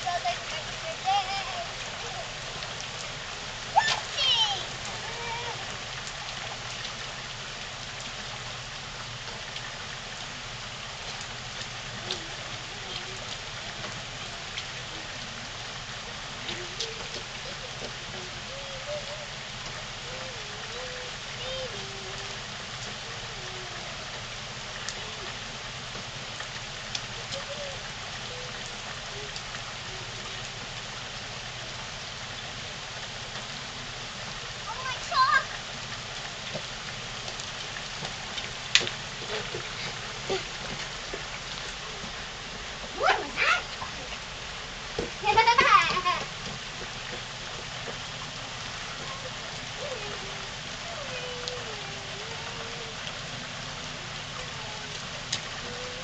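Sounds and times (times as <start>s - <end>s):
rain on pavement and lawn: 0.0s - 56.0s
faint ticks: 26.0s - 27.6s.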